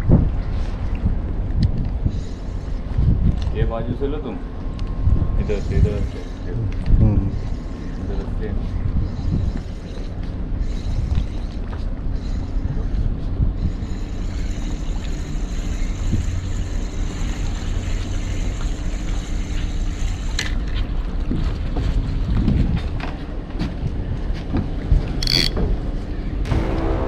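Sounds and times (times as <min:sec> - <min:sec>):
low rumble: 0:00.0 - 0:07.8, 0:21.0 - 0:27.0
wind on microphone: 0:00.0 - 0:16.8, 0:21.2 - 0:27.0
thin steady whine: 0:02.0 - 0:20.7, 0:25.2 - 0:27.0
reel gears ticking: 0:13.7 - 0:20.7, 0:25.2 - 0:25.6.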